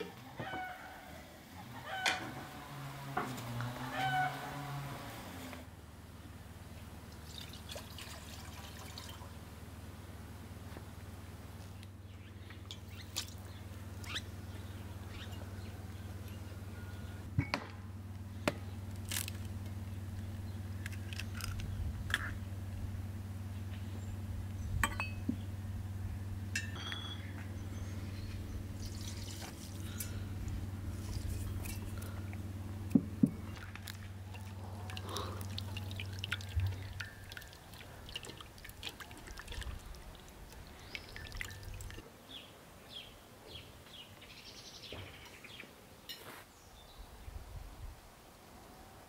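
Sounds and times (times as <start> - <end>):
low steady hum: 0.0 - 45.6
dishes clinking: 24.8 - 25.3, 26.6 - 27.4.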